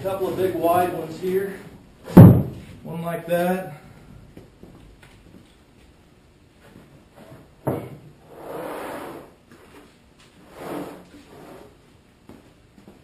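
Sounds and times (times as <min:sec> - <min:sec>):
wooden boards scraping: 0:10.4 - 0:11.8.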